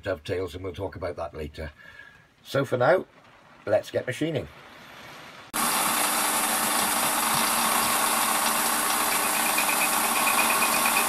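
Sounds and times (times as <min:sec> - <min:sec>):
lathe humming and whirring: 0:05.6 - 0:11.0.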